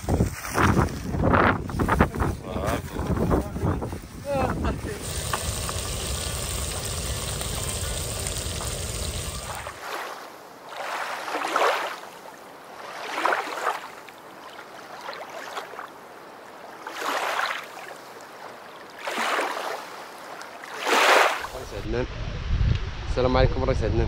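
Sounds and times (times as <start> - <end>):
sea surf washing in: 4.3 - 12.1, 20.7 - 21.9.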